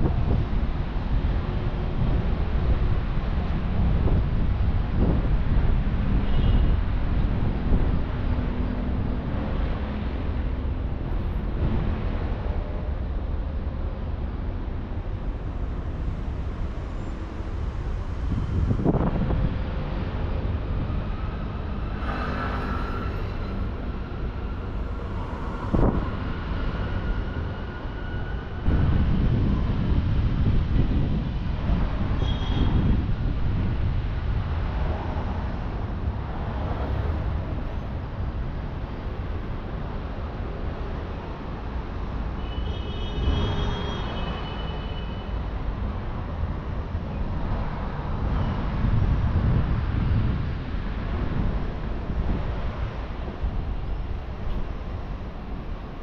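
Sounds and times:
passing vehicle rumble: 0.0 - 42.3
high-pitched whine: 20.7 - 29.7.

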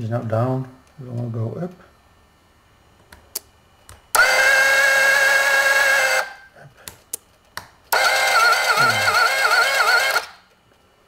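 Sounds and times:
small electric motor whining: 4.2 - 6.5, 7.9 - 10.4.

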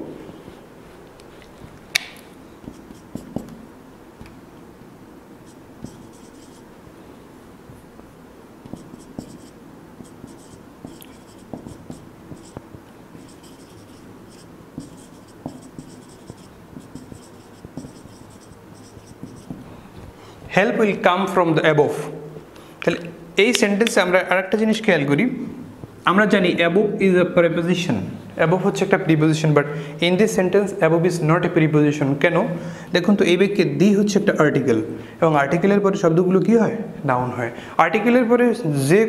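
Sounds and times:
marker writing on whiteboard: 1.4 - 1.8, 2.6 - 3.6, 5.4 - 6.7, 8.6 - 21.0.

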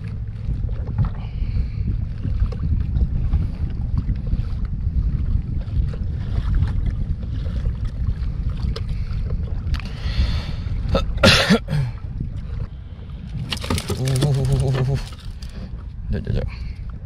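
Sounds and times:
wind buffeting microphone: 0.0 - 17.0
fishing gear knocking on kayak: 13.4 - 15.2.

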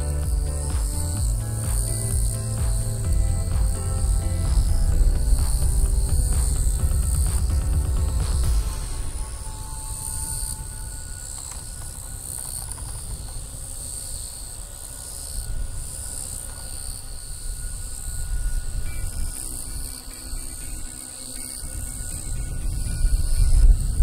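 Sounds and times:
low rumble: 0.0 - 12.1
faint thin whine: 0.0 - 24.0
insects buzzing: 0.0 - 24.0.

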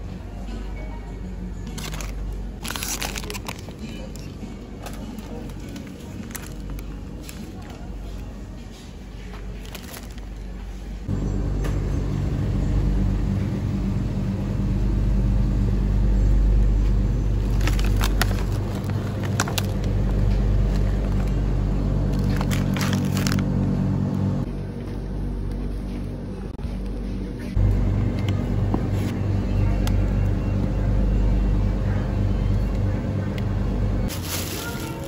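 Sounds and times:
steady low rumble: 0.0 - 35.0
plastic packaging crinkling: 1.7 - 7.9, 9.6 - 10.6, 17.3 - 21.4, 22.0 - 23.5, 34.1 - 35.0.

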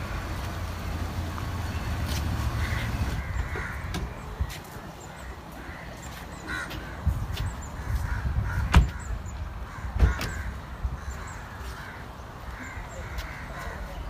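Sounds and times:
crows cawing: 2.4 - 4.2, 5.0 - 14.0.

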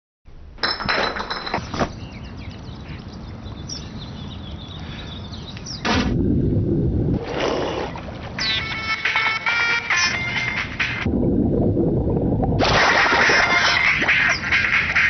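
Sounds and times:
muffled rush of churning water: 11.0 - 14.4
person diving into pool splash: 12.5 - 14.0.

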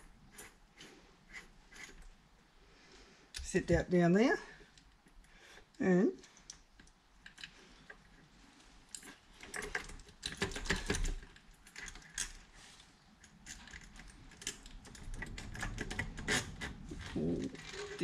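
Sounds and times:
small metal clicks and clatter: 8.9 - 12.4, 13.2 - 18.0.

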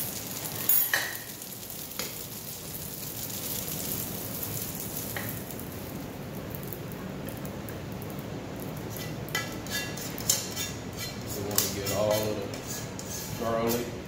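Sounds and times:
noodles sizzling in hot pan: 0.0 - 11.8
fork scraping pan: 8.9 - 14.0.

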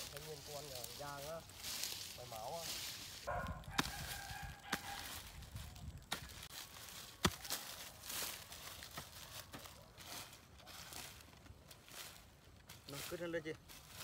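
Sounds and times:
hoe chopping into soil and leaves: 1.6 - 14.0.

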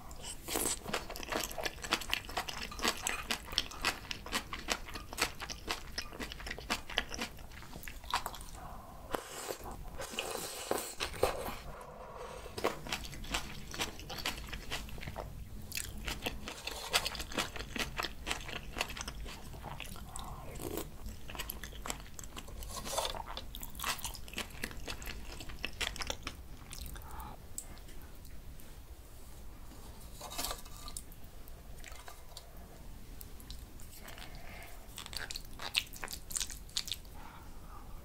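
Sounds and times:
close chewing and mouth sounds: 0.0 - 11.8, 12.4 - 28.6, 30.0 - 37.4.

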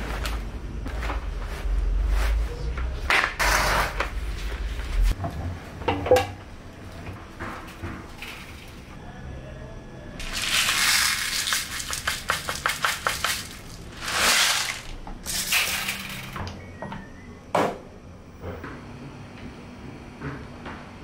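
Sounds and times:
beads rattling into plastic cap: 10.2 - 16.2.

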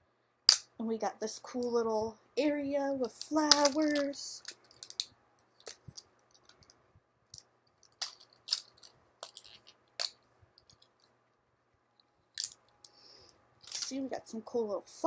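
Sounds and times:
plastic packaging clicking and crackling: 3.1 - 6.8, 7.7 - 11.1.

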